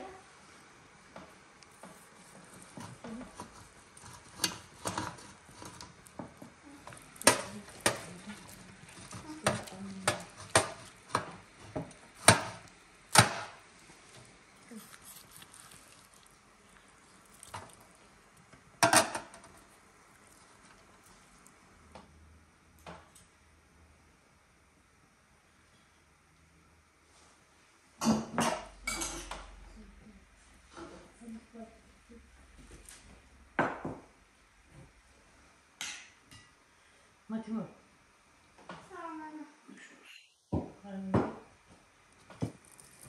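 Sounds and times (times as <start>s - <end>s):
knife crunching through crust: 6.8s - 11.3s, 14.0s - 18.5s, 42.5s - 43.0s.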